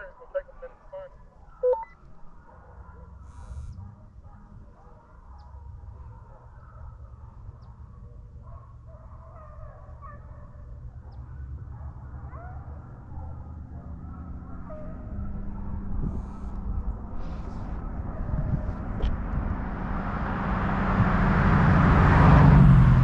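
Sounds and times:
distant hounds baying: 0:00.0 - 0:23.0
steady low rumble: 0:15.0 - 0:23.0.

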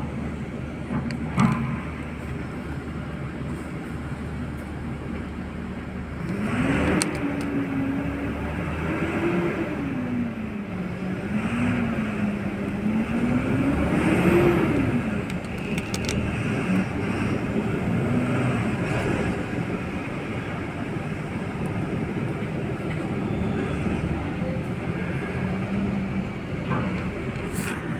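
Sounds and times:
diesel engine revving: 0:05.5 - 0:27.9.

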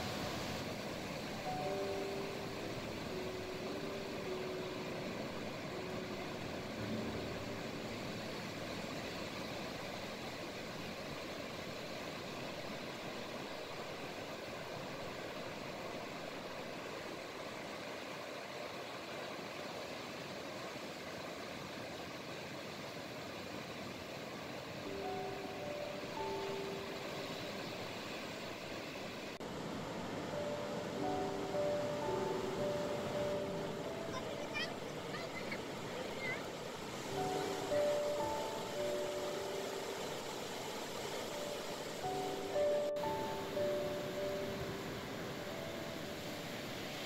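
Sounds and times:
faint background music: 0:00.0 - 0:10.2, 0:29.9 - 0:47.0
waves breaking on shore: 0:00.0 - 0:47.0.

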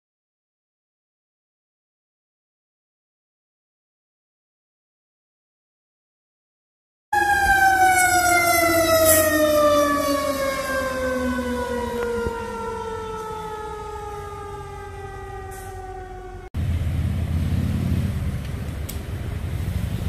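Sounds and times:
fire engine siren winding down: 0:07.1 - 0:16.7
low vehicle rumble: 0:08.5 - 0:20.0.

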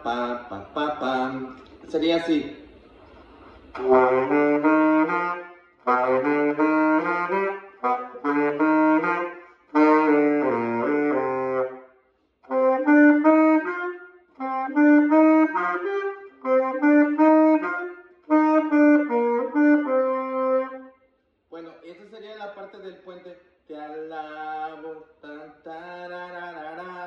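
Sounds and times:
tenor saxophone melody: 0:03.7 - 0:21.0.

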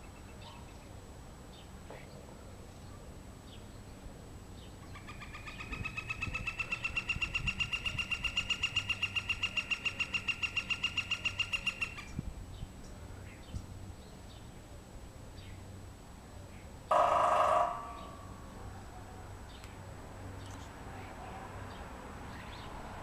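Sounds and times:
woodpecker calling: 0:04.8 - 0:12.2, 0:16.9 - 0:18.4.

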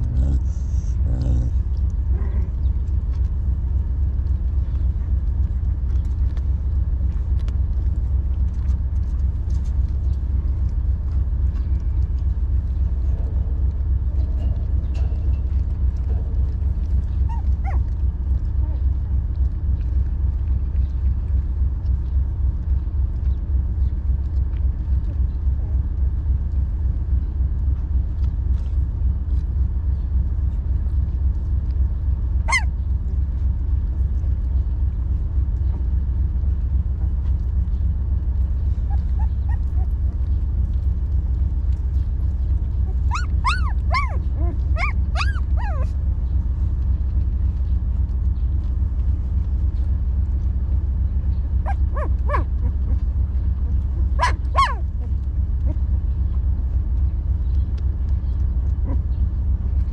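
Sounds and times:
puppies whimpering and yelping: 0:00.0 - 0:03.2, 0:14.4 - 0:19.0, 0:32.4 - 0:33.2, 0:38.4 - 0:41.0, 0:41.6 - 0:46.6, 0:51.5 - 0:56.3, 0:58.6 - 0:59.9
low rumble: 0:00.0 - 0:59.9.

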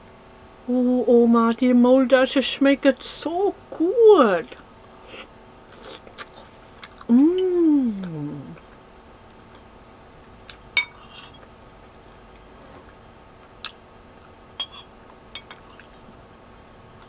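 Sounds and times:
metal spoon clinking on ceramic bowl: 0:10.8 - 0:11.0.

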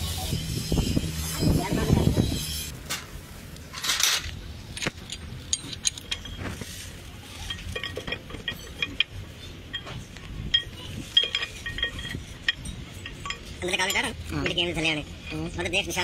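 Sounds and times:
metal tools clinking: 0:03.7 - 0:16.0.

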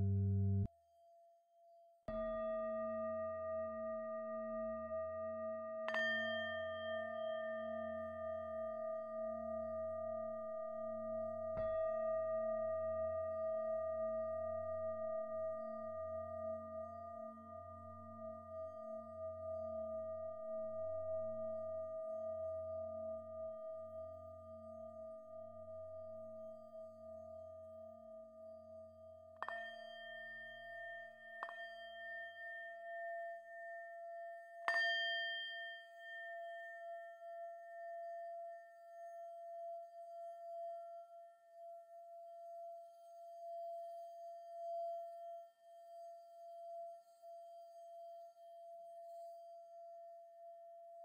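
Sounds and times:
singing bowl tones ringing: 0:29.4 - 0:49.6.

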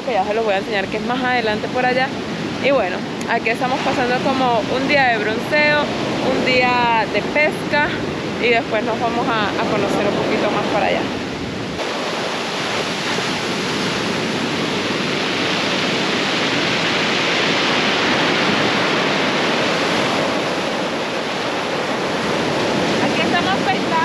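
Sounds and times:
heavy ocean surf: 0:00.0 - 0:24.0.

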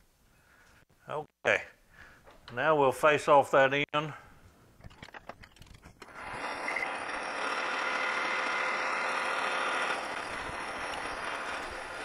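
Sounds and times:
metal lathe running: 0:06.0 - 0:12.0.

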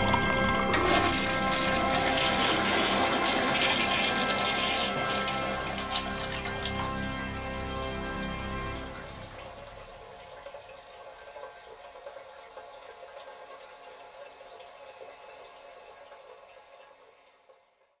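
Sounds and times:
liquid fizzing in a glass: 0:00.6 - 0:07.1.

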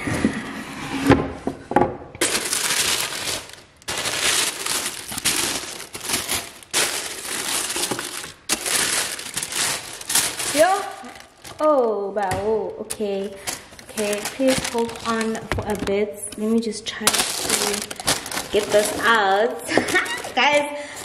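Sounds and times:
tissue paper rustling: 0:02.2 - 0:11.8, 0:13.4 - 0:15.4, 0:17.0 - 0:20.6.

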